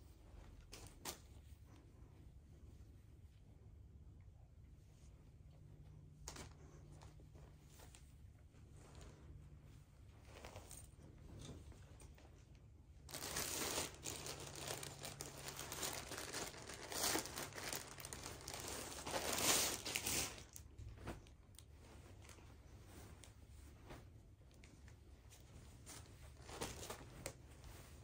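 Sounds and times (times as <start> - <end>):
plastic bag crinkling: 13.1 - 21.3.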